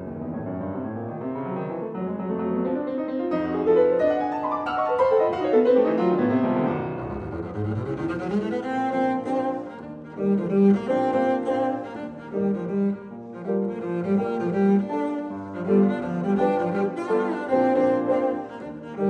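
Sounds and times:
grand piano: 0.0s - 19.0s
bowed double bass melody: 6.8s - 19.0s.

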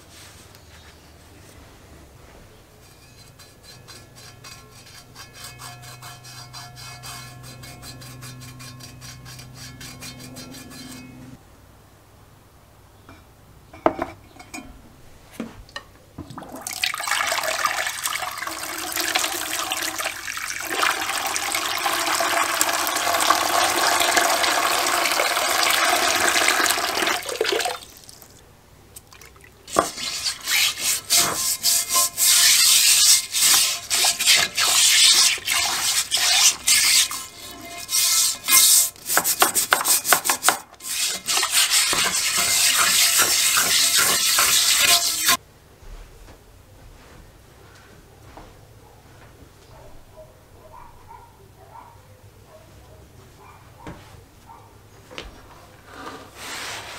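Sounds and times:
liquid pouring: 16.2s - 28.4s.

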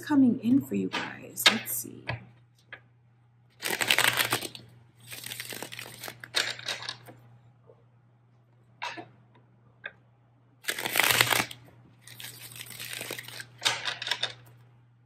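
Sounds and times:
cards being shuffled: 3.6s - 7.1s, 10.6s - 14.4s.

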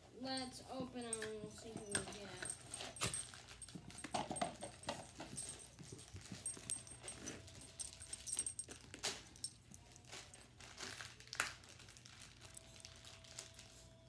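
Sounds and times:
packaging crinkling: 7.4s - 14.0s.

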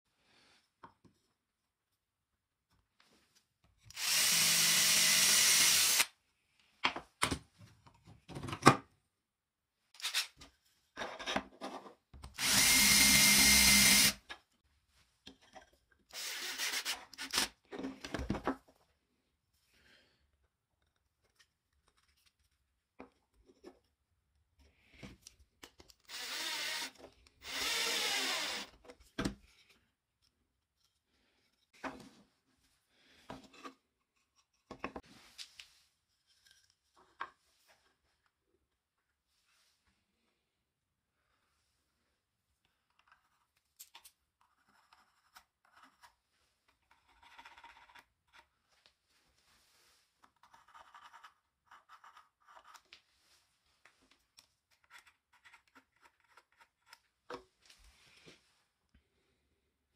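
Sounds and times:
power drill driving a screw: 3.9s - 6.1s, 12.4s - 14.2s, 16.1s - 17.5s, 26.1s - 28.8s.

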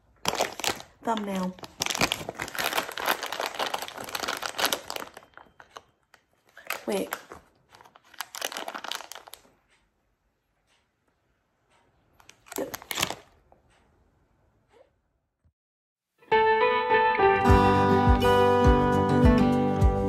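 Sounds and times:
plastic snack bags crinkling: 0.0s - 9.6s, 12.2s - 13.4s
guitar music: 16.2s - 20.0s.

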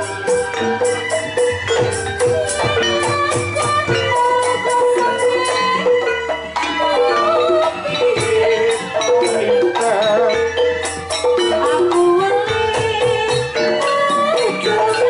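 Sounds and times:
drums: 0.0s - 15.0s
metal mallet instruments melody: 0.0s - 15.0s
rattling percussion: 0.0s - 15.0s
wavering melody line: 0.0s - 15.0s.

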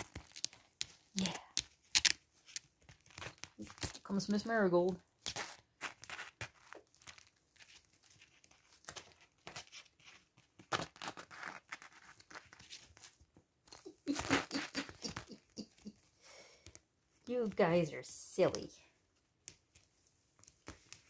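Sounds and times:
kittens scratching on mesh: 5.2s - 13.1s.

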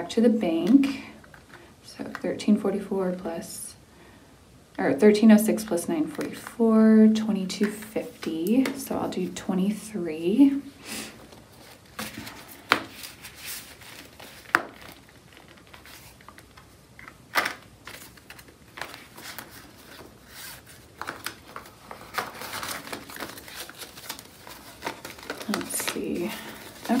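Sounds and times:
banknotes rustling and crinkling: 7.3s - 9.7s, 10.3s - 27.0s.

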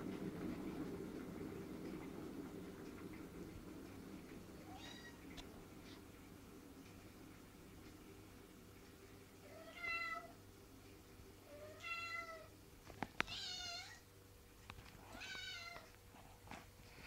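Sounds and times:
cat meowing: 4.7s - 5.2s.

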